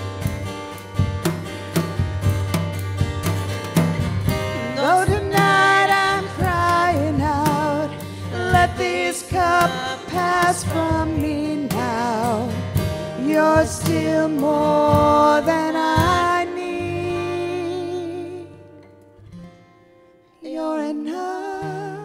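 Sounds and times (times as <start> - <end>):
strummed acoustic guitar: 0.0 - 22.0
women singing: 4.5 - 18.6, 20.4 - 22.0.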